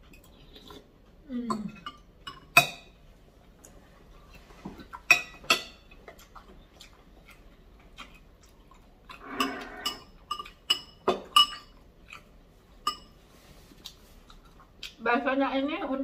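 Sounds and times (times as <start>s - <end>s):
cutlery clinking against a bowl: 1.5s - 3.0s, 4.9s - 6.3s, 9.1s - 13.2s.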